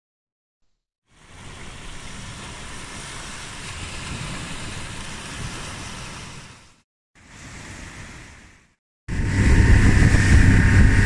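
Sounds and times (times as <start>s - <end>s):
small waves breaking on shore: 1.1s - 8.8s.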